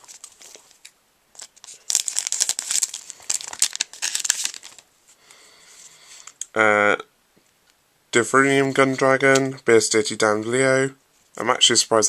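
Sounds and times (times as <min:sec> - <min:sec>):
wrapper crinkling and tearing: 0:00.0 - 0:04.9.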